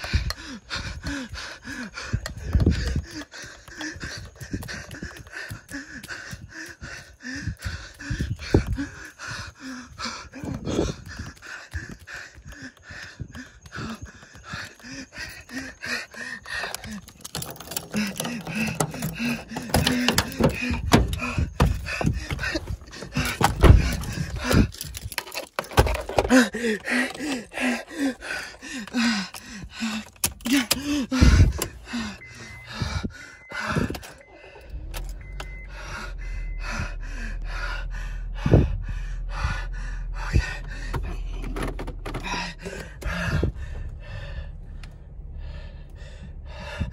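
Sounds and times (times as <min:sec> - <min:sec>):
person panting and gasping: 0:00.0 - 0:46.9
sharp thumps and knocks: 0:16.7 - 0:27.2
low steady rumble: 0:31.0 - 0:46.9.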